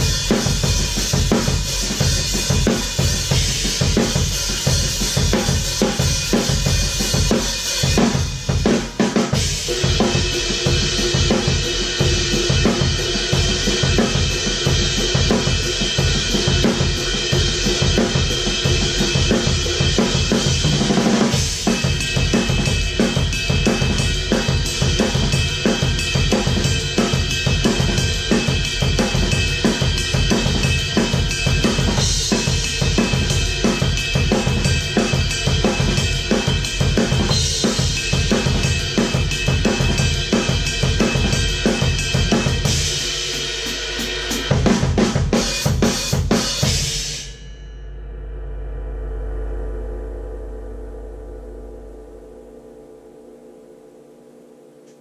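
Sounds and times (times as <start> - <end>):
drum kit playing: 0.0 - 47.6.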